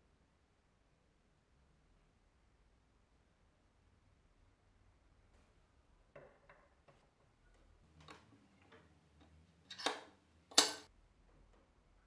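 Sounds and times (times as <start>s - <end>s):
lock cylinder clacks: 8.0s - 10.9s.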